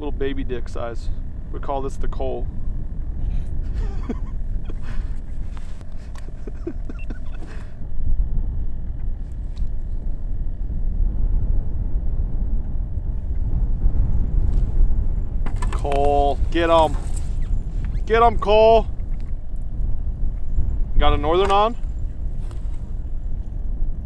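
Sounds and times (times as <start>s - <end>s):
wind rumble on microphone: 0.0s - 24.0s.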